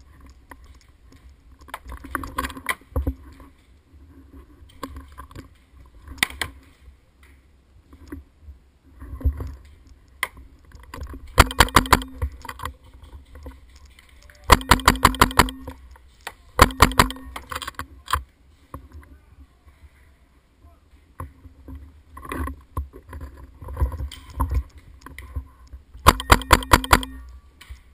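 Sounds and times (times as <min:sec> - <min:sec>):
paintball marker shots: 0:11.4 - 0:12.3, 0:14.5 - 0:15.8, 0:16.6 - 0:17.5, 0:26.0 - 0:27.2.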